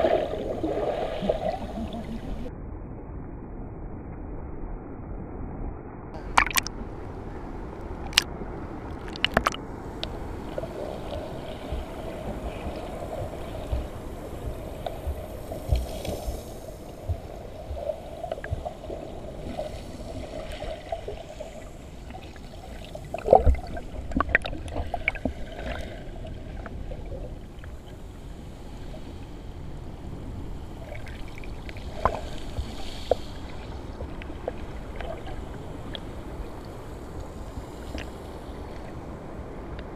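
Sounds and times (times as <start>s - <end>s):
muffled underwater sloshing: 0.0s - 2.5s, 6.2s - 39.9s
sharp underwater clicks: 6.2s - 6.8s, 8.0s - 8.3s, 8.9s - 10.1s.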